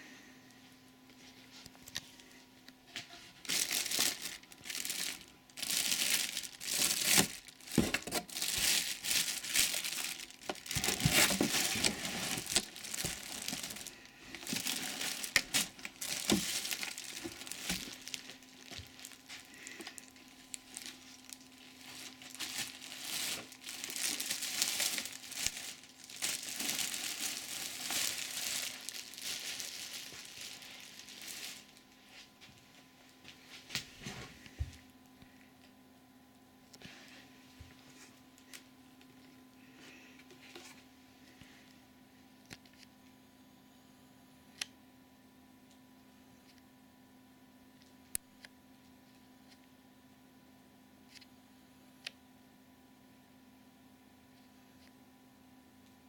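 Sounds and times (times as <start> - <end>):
plastic bag crinkling: 3.0 - 32.8.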